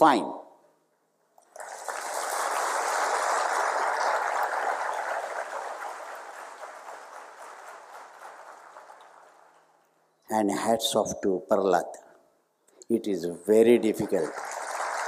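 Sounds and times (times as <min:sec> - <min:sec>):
audience applauding: 0:01.4 - 0:09.9, 0:14.0 - 0:15.0.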